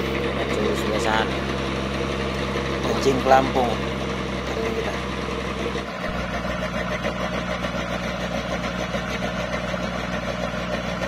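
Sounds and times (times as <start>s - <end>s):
pump engine droning hum: 0.0s - 11.0s.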